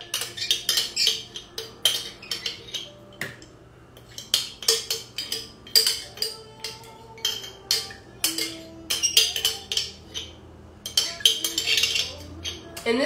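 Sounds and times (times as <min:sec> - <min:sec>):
utensil scraping glass jar: 0:10.9 - 0:12.7.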